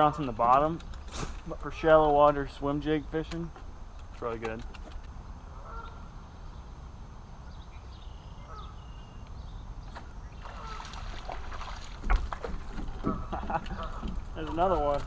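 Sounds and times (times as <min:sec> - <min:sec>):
fish splashing at surface: 0:10.4 - 0:13.0.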